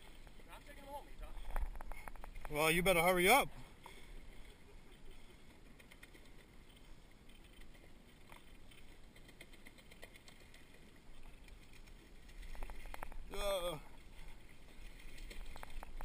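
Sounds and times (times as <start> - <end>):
faint clicks: 1.4 - 2.6, 3.8 - 13.3.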